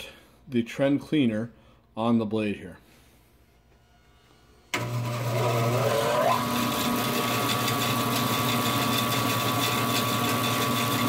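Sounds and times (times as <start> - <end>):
bandsaw motor whine and hum: 4.7 - 11.0.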